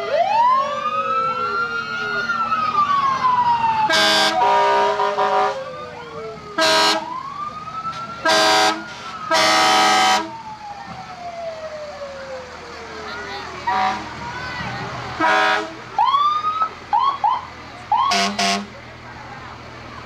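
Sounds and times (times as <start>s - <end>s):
fire engine siren winding down: 0.0s - 18.7s
air horn blasts: 3.9s - 5.6s, 6.6s - 7.1s, 8.2s - 10.3s, 13.7s - 14.1s, 15.2s - 15.8s, 18.1s - 18.7s.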